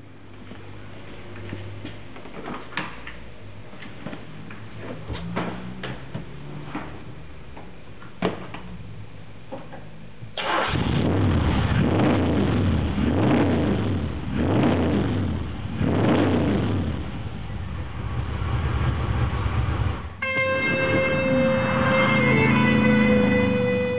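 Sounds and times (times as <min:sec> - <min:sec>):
car engine starting and revving: 0:04.6 - 0:07.4, 0:10.4 - 0:17.4, 0:18.4 - 0:23.9.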